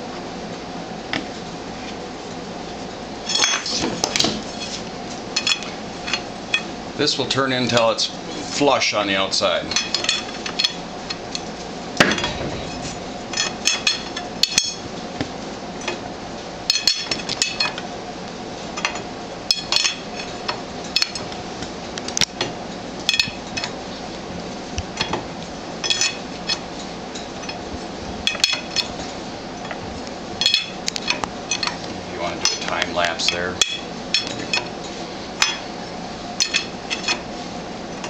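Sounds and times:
wrench clinking on metal: 0:13.3 - 0:14.8, 0:25.8 - 0:26.6, 0:30.4 - 0:31.8, 0:36.4 - 0:37.2.

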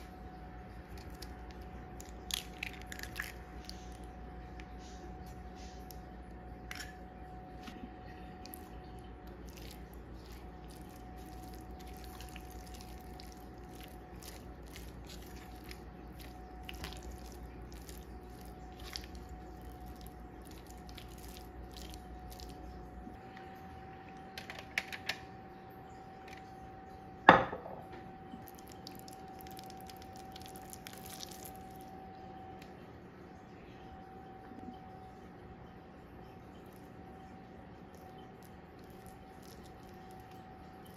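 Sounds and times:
wet squishing of mixing meat: 0:00.0 - 0:06.2, 0:07.6 - 0:23.2, 0:28.3 - 0:32.1, 0:36.5 - 0:40.9.

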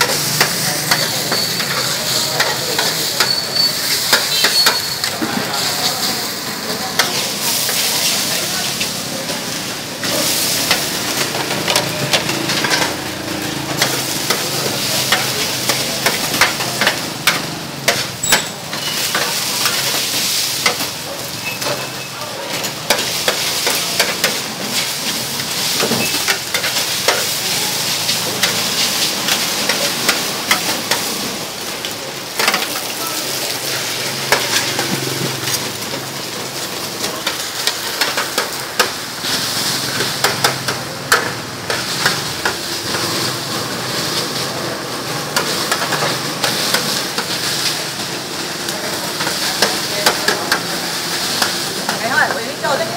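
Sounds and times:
metal spatula scraping and clacking: 0:00.0 - 0:05.1, 0:10.1 - 0:13.0, 0:13.7 - 0:31.1
noodles sizzling on a griddle: 0:00.0 - 0:52.9.

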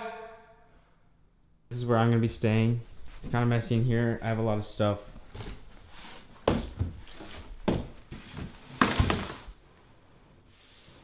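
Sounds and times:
objects knocking and thumping: 0:06.4 - 0:09.6.

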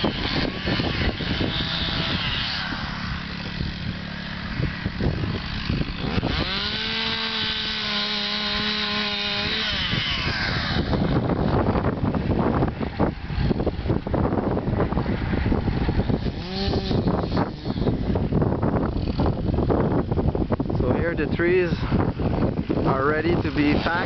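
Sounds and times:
chainsaw revving: 0:00.0 - 0:11.7, 0:16.0 - 0:19.7, 0:22.9 - 0:24.0
wind buffeting microphone: 0:00.0 - 0:24.0.

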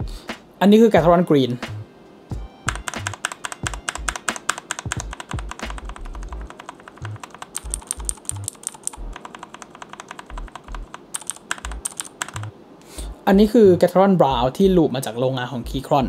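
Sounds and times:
mechanical keyboard clicks: 0:02.7 - 0:12.5.

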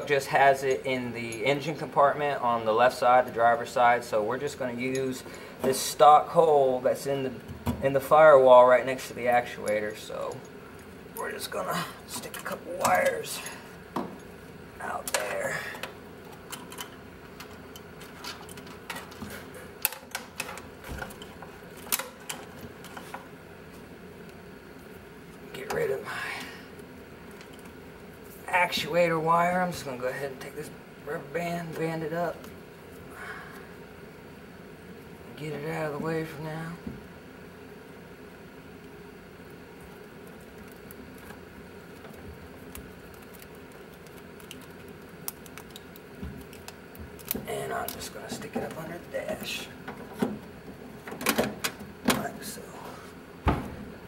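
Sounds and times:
steady low hum: 0:00.0 - 0:54.0
wires rustling and clicking: 0:08.9 - 0:30.6, 0:38.8 - 0:52.6.

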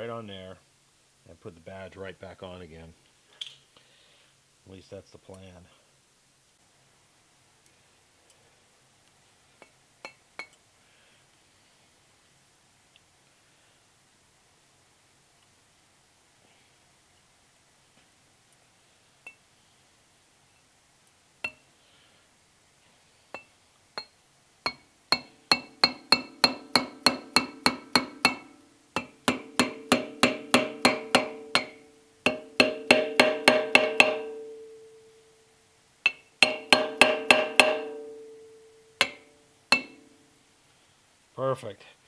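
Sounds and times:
hammer tapping on cast iron: 0:21.4 - 0:21.6, 0:24.7 - 0:34.8, 0:36.1 - 0:40.1.

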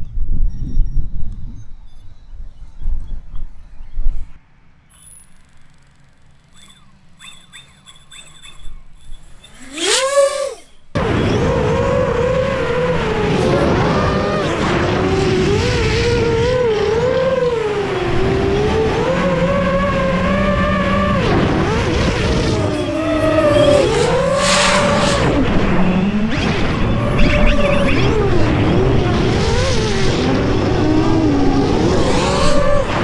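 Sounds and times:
quadcopter propellers whining: 0:04.7 - 0:33.0
steady rushing noise: 0:21.1 - 0:33.0.

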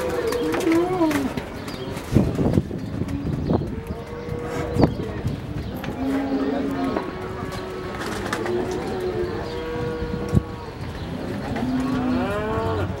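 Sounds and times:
cattle mooing: 0:05.9 - 0:13.0.

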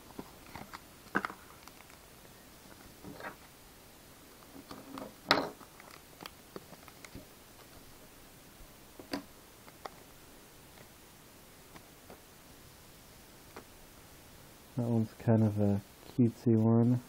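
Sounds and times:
foil wrapper tearing and crinkling: 0:00.4 - 0:02.0.

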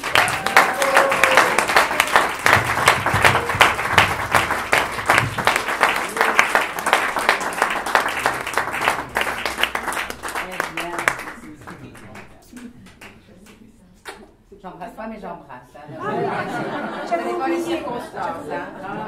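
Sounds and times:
group of people clapping: 0:00.0 - 0:14.3.

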